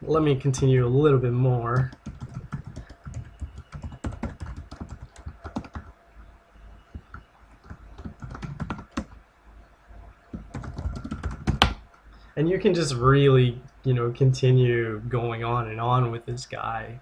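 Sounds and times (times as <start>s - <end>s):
computer keyboard typing: 1.7s - 5.9s, 6.9s - 9.2s, 10.3s - 11.8s.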